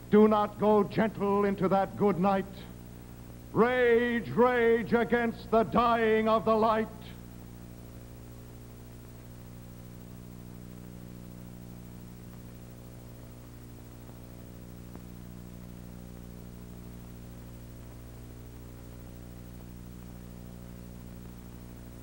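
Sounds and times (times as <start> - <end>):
constant hiss: 0.0 - 22.0
mains hum with overtones: 0.0 - 22.0.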